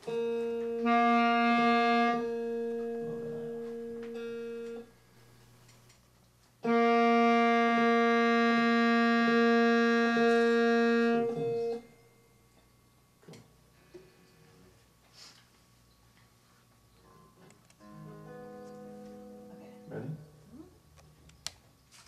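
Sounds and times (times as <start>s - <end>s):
sustained instrument notes: 0.0s - 5.0s, 6.6s - 12.6s.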